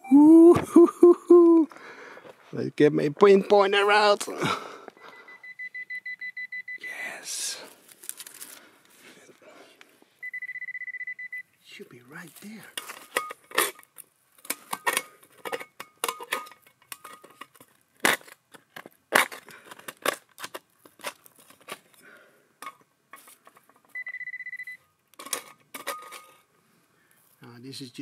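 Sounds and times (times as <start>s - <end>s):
short electronic beep: 5.1s - 6.9s, 10.2s - 11.4s, 24.0s - 24.8s.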